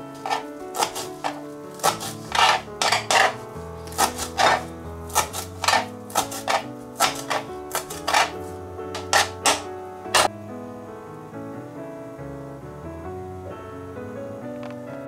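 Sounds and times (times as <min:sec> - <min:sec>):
background music with held notes: 0:00.0 - 0:15.0
knife chopping on plastic board: 0:00.2 - 0:08.4, 0:09.0 - 0:10.3
knife scraping cutting board: 0:00.2 - 0:10.3.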